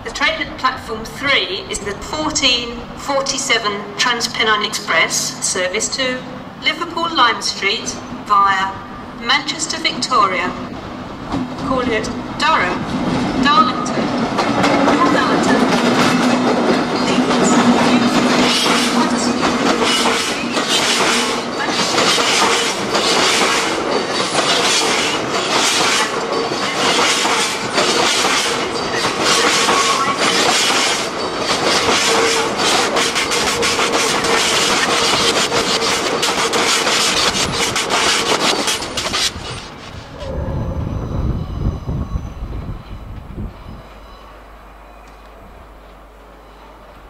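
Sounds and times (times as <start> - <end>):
train wheels clattering over rail joints: 12.9 - 40.0.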